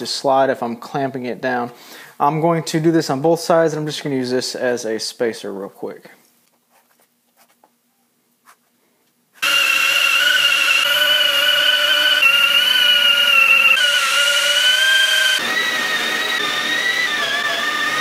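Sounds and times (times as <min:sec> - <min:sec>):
cordless drill motor whine: 0:09.4 - 0:18.0.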